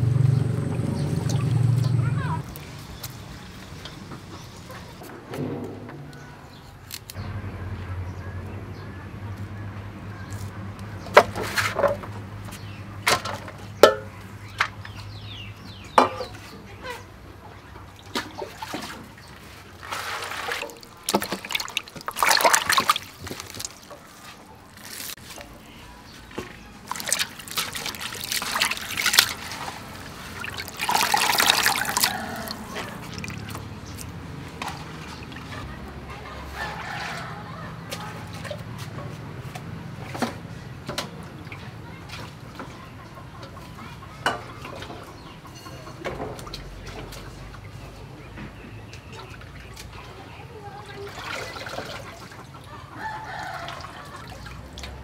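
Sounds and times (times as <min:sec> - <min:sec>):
water pouring into a steel basin: 0:19.8 - 0:23.9, 0:26.8 - 0:33.9.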